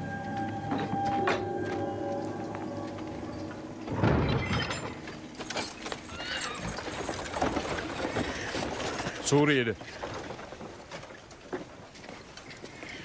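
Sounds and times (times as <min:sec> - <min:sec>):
sustained music score: 0:00.0 - 0:05.9
outdoor ambience: 0:00.0 - 0:13.0.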